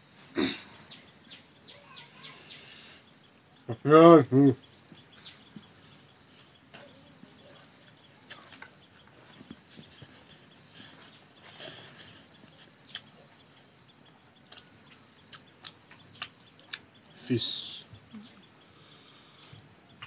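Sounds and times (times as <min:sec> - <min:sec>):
high-pitched cricket-like hum: 0:00.0 - 0:20.0
eating and chewing sounds: 0:04.9 - 0:17.2.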